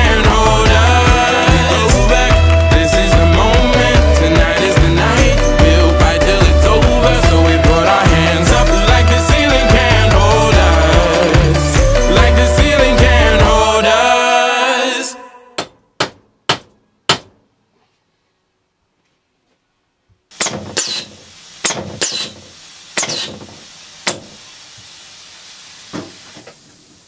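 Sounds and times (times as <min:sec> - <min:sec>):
music: 0:00.0 - 0:15.4
compressed air hiss: 0:20.3 - 0:27.0
pneumatic cylinder clacks: 0:20.4 - 0:22.4, 0:23.0 - 0:23.5.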